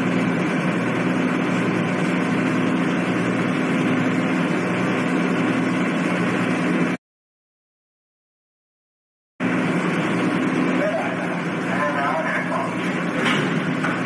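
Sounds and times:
ship engines droning: 0.0 - 7.0, 9.4 - 14.0.

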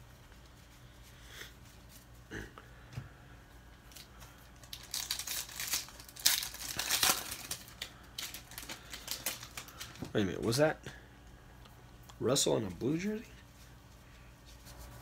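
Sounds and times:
wrapper crinkling and tearing: 3.9 - 10.5.

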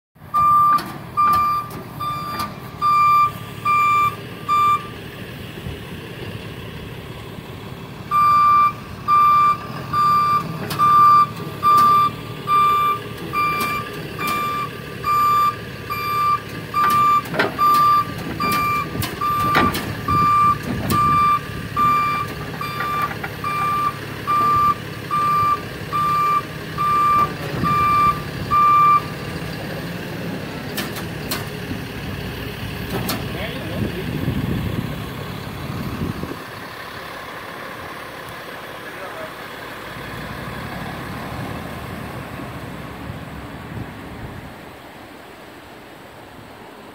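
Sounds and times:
truck engine idling: 0.2 - 43.9
reversing alarm beeping: 0.3 - 5.0, 8.1 - 29.1.

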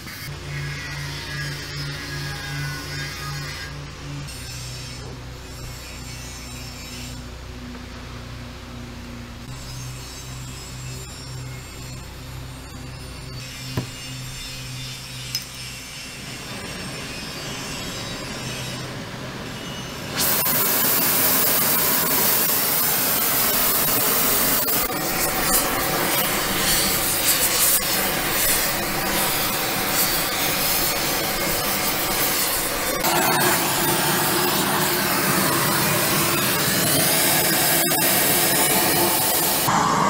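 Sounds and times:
gas torch hissing: 20.0 - 40.0.

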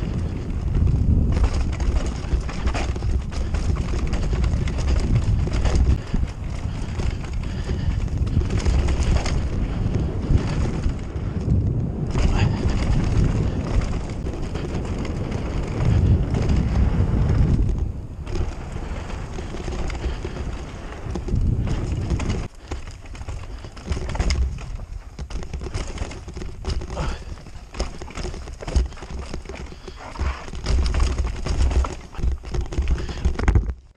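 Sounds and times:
wind rush: 0.0 - 26.0
bike knocks and rattles: 0.0 - 33.9
tyre roar on dirt: 0.0 - 33.9.

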